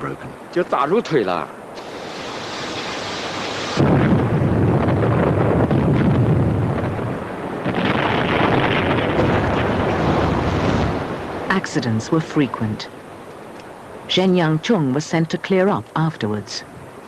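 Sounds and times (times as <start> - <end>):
hiss: 1.8 - 3.8
rock blasting explosion rumble: 3.7 - 11.4.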